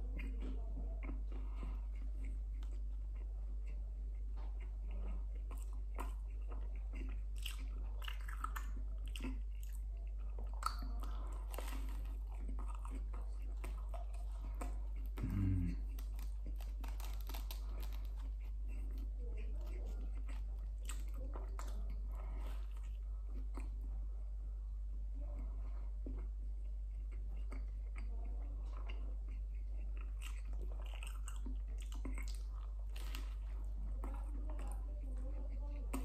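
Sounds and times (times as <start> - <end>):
person chewing crusty bread: 0.0 - 24.2, 25.0 - 36.0
person humming: 15.2 - 15.8.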